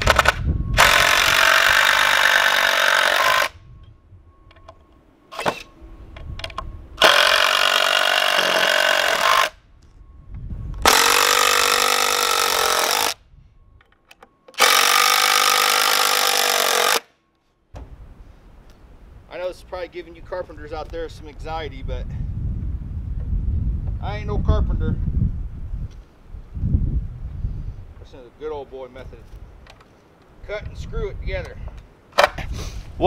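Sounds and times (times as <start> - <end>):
cordless driver driving screws: 0.0 - 3.5, 6.4 - 9.6, 10.8 - 13.2, 14.5 - 17.0.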